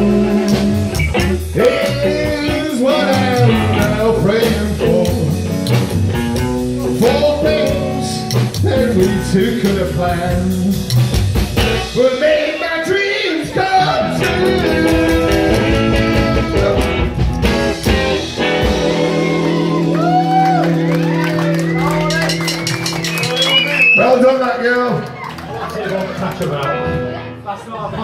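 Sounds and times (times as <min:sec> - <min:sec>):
person singing: 0:00.0 - 0:05.5, 0:06.8 - 0:10.9, 0:11.8 - 0:17.2, 0:17.9 - 0:21.2
steady drum beat: 0:00.0 - 0:12.2, 0:14.0 - 0:24.4
electric guitar: 0:00.0 - 0:12.6, 0:13.4 - 0:24.0, 0:24.9 - 0:27.5.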